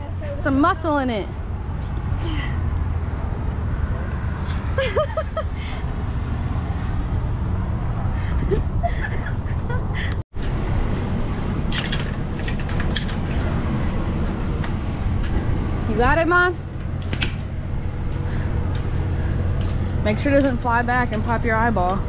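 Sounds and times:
sharp clicks and rattles: 11.7 - 13.5.

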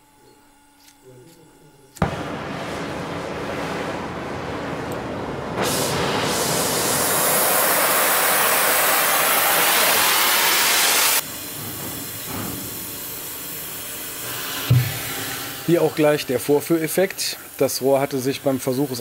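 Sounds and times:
oxy-acetylene torch hissing: 5.6 - 19.0.

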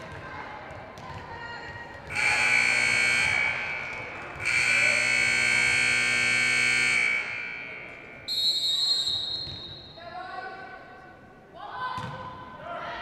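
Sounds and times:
electric buzzer: 2.1 - 8.2
referee whistle blast: 2.1 - 10.0.

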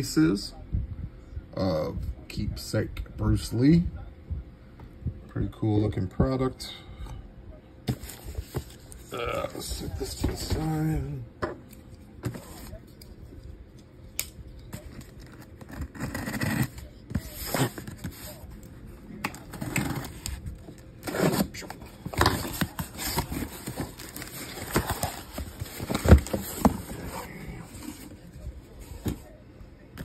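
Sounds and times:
cardboard box being opened: 15.0 - 18.4, 21.0 - 28.2.

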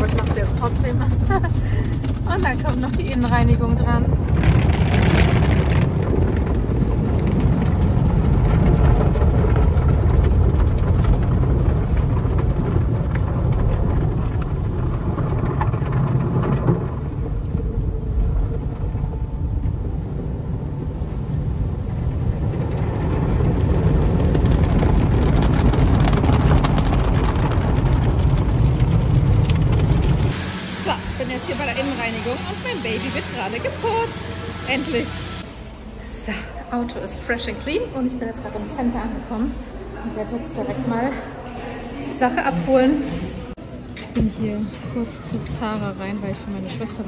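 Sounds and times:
water spraying on glass: 30.0 - 35.5
car wash brushes scrubbing: 30.2 - 35.5.

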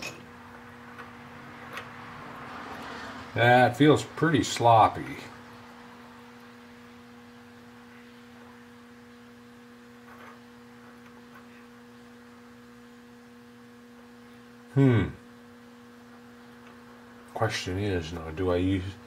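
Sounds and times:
steady electrical hum: 0.0 - 19.0
man humming hmm: 14.7 - 15.3.

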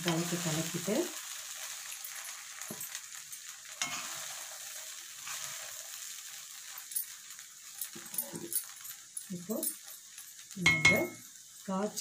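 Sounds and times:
soft sizzle in a pan: 0.0 - 12.0
spatula scraping grains: 3.8 - 6.1.

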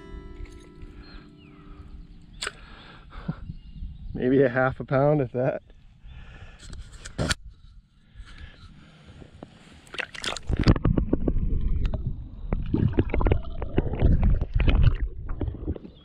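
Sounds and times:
muffled underwater sloshing: 9.8 - 16.0
knocks and splashes: 9.9 - 16.0.

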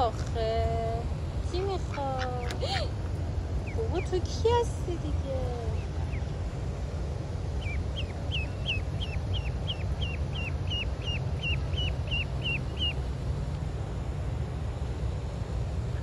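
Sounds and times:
steady low rumble: 0.0 - 16.0
duckling peeping: 1.6 - 6.5, 7.5 - 13.1.

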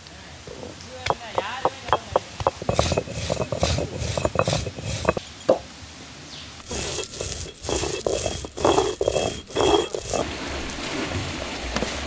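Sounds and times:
stone grinding strokes: 1.1 - 5.6, 6.6 - 10.2
stone roller knocking on slab: 1.1 - 5.6, 6.6 - 10.2.

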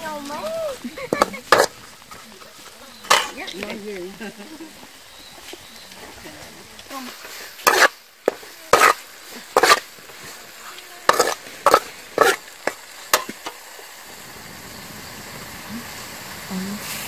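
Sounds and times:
frying sizzle: 0.0 - 17.0
metal spatula scraping wok: 1.1 - 3.7, 6.9 - 13.6.

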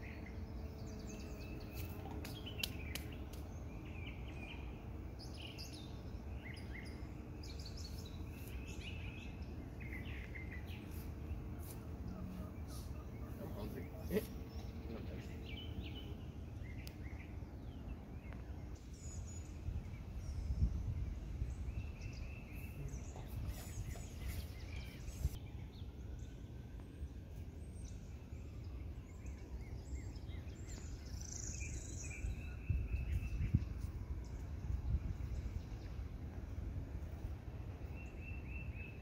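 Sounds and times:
low rumble on microphone: 13.8 - 25.4, 26.2 - 38.5.

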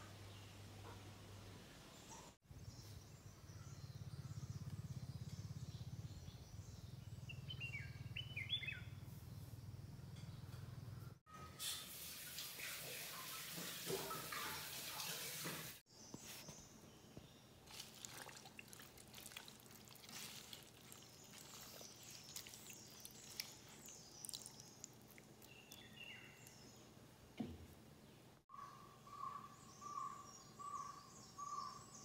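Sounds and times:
water splashing and dripping: 11.8 - 15.8, 17.6 - 26.0
hands rinsing leaves in water: 17.6 - 26.5.

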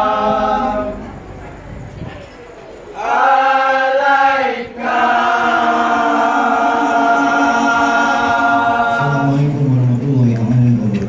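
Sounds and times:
boys and men singing: 0.0 - 1.1, 3.0 - 9.7
low man's voice: 8.7 - 11.0.

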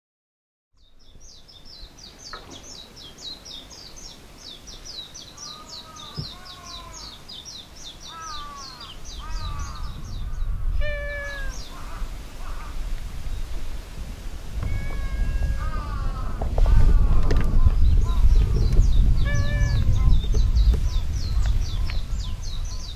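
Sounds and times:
low wind rumble: 0.8 - 22.9
cat meowing: 10.8 - 11.9, 14.6 - 17.2, 19.2 - 20.1
short arched calls: 10.8 - 12.6.

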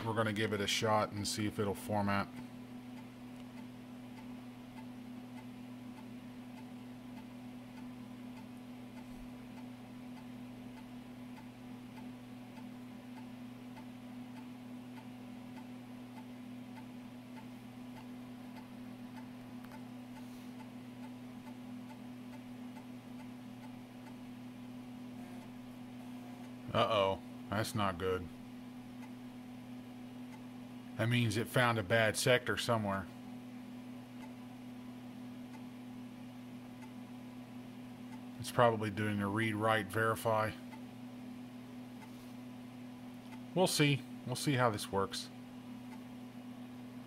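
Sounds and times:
floppy drive ticking: 2.2 - 26.8, 28.6 - 30.7, 35.4 - 35.8.

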